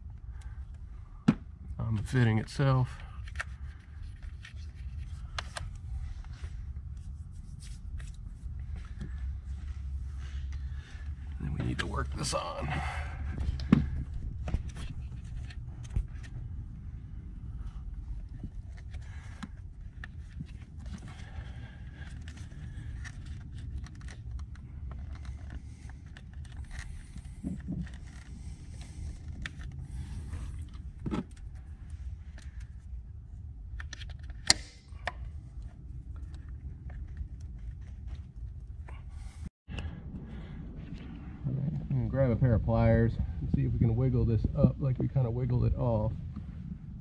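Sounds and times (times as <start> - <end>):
low steady rumble: 0.0 - 47.0
rubber hose rubbing and scraping: 17.7 - 32.7.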